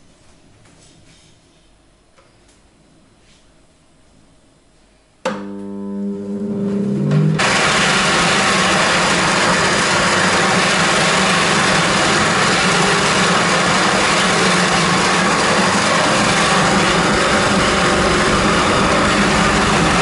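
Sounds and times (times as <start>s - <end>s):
electric juicer whirring: 5.3s - 20.0s.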